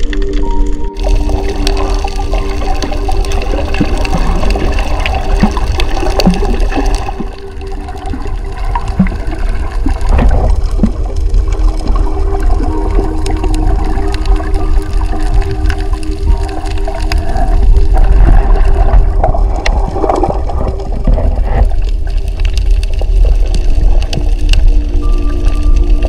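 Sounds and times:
steady low rumble: 0.0 - 26.0
water rushing and splashing: 0.0 - 26.0.

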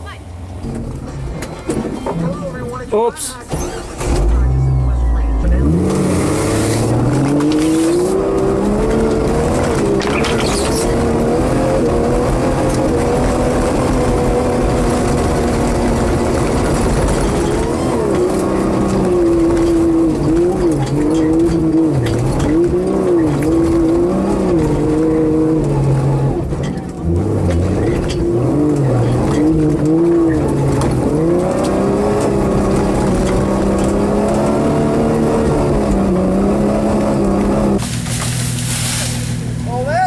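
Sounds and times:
vehicle engine revving: 0.0 - 39.7.

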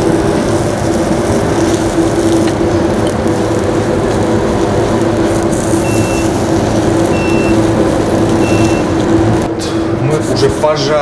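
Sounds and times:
kitchen ventilation hum: 0.0 - 11.0
short high appliance beeps: 5.8 - 6.3, 7.1 - 7.6, 8.4 - 9.0.

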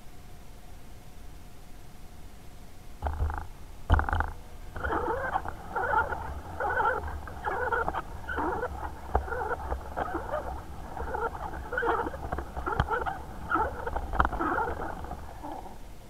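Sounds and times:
sharp clicks: 3.0 - 15.7
rasping chattering sound: 4.0 - 15.8.

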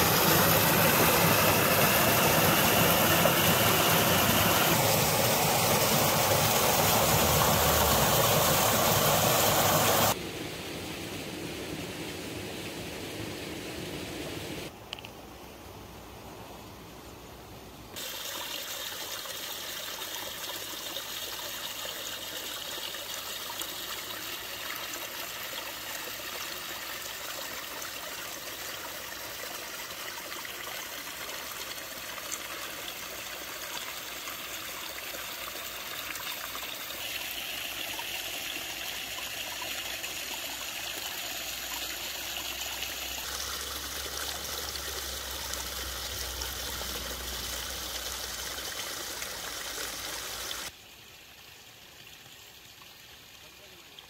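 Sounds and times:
water rushing and bubbling: 0.0 - 10.2.

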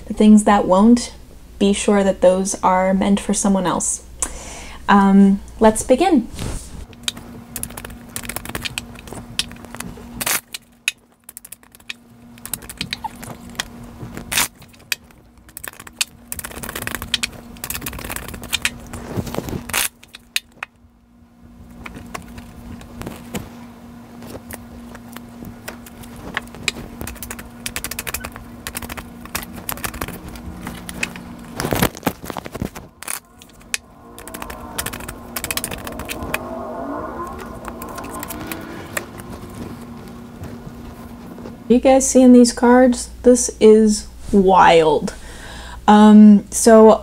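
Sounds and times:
cards being shuffled: 25.7 - 33.2.

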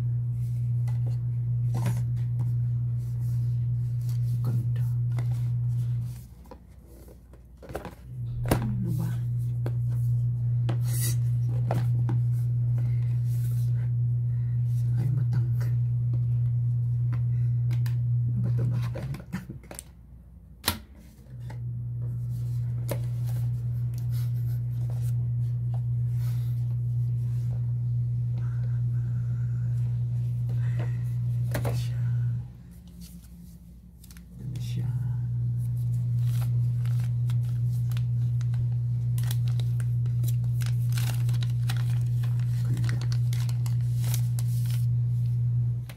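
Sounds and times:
low hum: 0.0 - 45.9.

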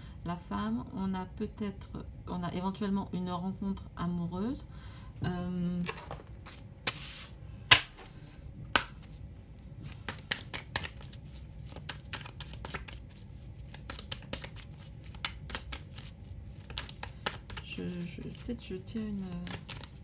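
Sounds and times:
cards being shuffled: 5.8 - 8.1, 8.7 - 20.0.

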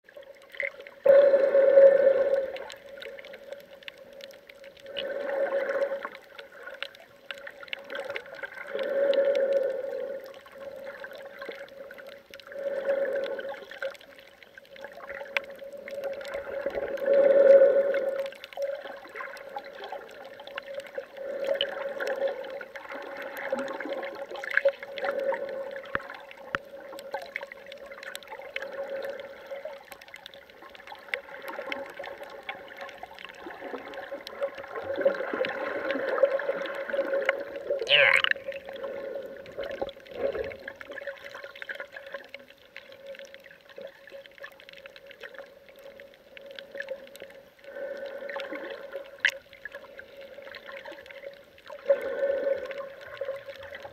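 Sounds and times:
underwater rushing swells: 0.5 - 42.3.

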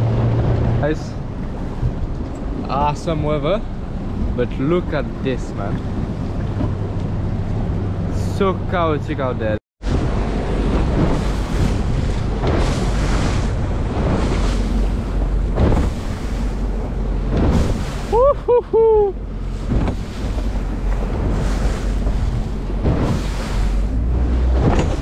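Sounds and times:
boat running through choppy sea: 0.0 - 25.0
rushing water and spray: 9.8 - 25.0
wind buffeting microphone: 9.8 - 25.0
person whooping: 18.1 - 19.2.

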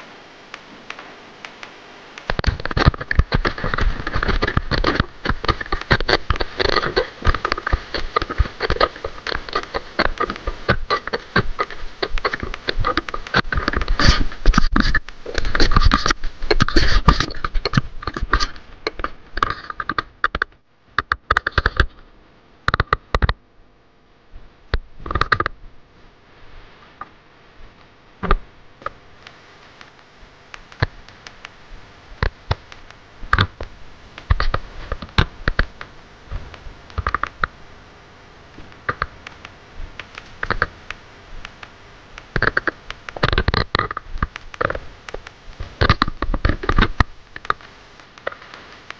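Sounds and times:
gloved hands scratching fishing line: 2.2 - 20.4.

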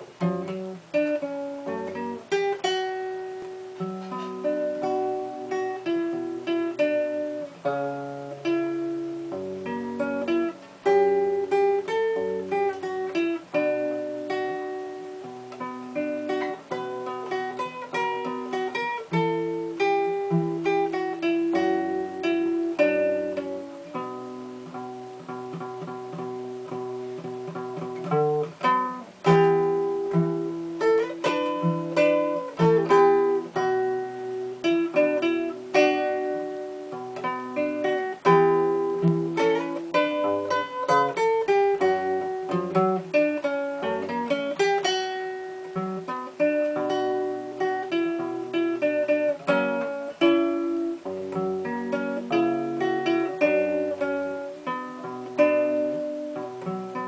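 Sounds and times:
fingerstyle nylon-string guitar: 0.0 - 57.0.

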